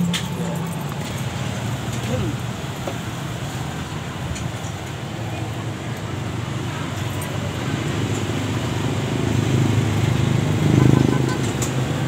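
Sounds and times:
low engine rumble: 0:00.0 - 0:09.4.

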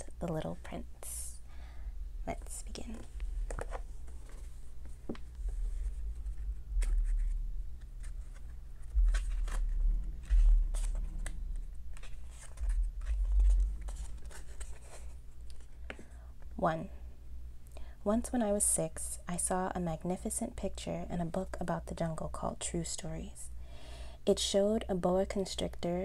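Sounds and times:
book pages turning: 0:02.7 - 0:16.0
dull thuds of book handled: 0:08.8 - 0:11.3.

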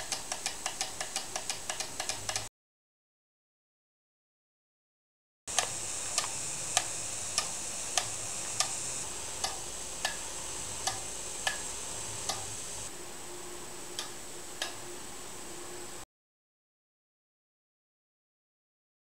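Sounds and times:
sharp mechanical clicks: 0:00.0 - 0:02.5, 0:05.5 - 0:08.8, 0:09.4 - 0:10.2, 0:10.8 - 0:12.5
airbrush air hiss: 0:05.5 - 0:12.9.

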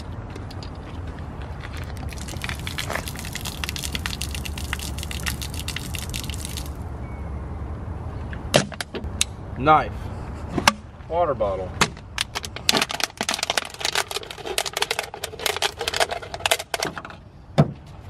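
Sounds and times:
water splashing onto asphalt: 0:01.8 - 0:06.8.

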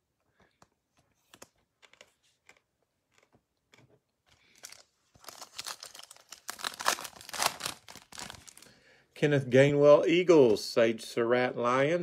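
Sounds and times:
plastic wrapper tearing: 0:04.5 - 0:08.7.

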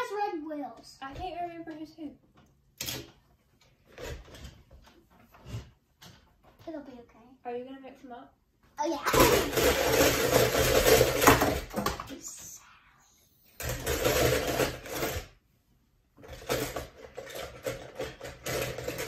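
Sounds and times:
toy cars clattering in plastic bowl: 0:09.0 - 0:12.3, 0:13.6 - 0:15.4, 0:16.2 - 0:19.0.

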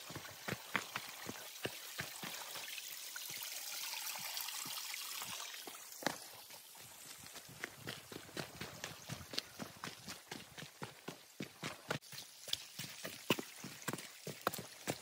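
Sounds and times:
footsteps on dirt trail: 0:00.0 - 0:02.9, 0:04.7 - 0:15.0
water pouring onto rocks: 0:00.0 - 0:06.0.

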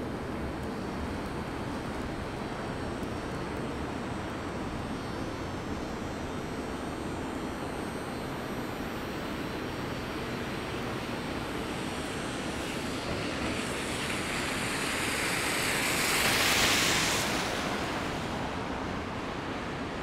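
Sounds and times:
hum of city traffic: 0:00.0 - 0:20.0
tyre hiss of passing vehicle: 0:12.4 - 0:18.7.

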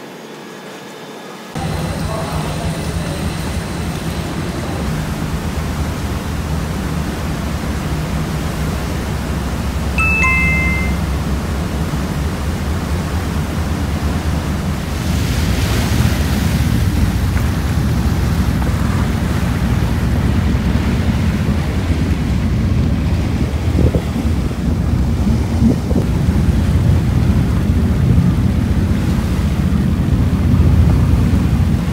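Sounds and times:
ferry engine humming: 0:01.5 - 0:31.9
wind and water rushing: 0:01.5 - 0:31.9
two-note descending chime: 0:10.0 - 0:11.2.

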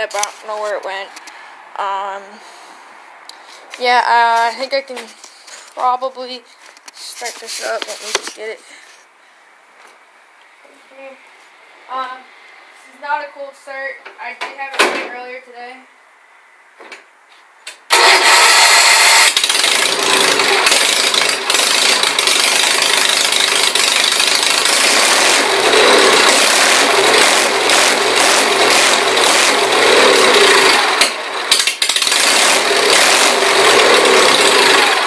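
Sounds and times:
tractor engine starting and revving: 0:17.9 - 0:35.0.

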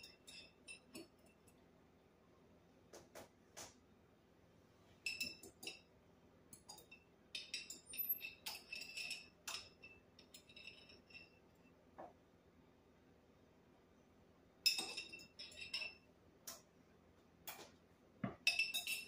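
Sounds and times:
metal fork clinking on glass jar: 0:00.0 - 0:01.6, 0:05.1 - 0:05.9, 0:06.5 - 0:11.4, 0:14.7 - 0:16.1, 0:18.3 - 0:19.0.

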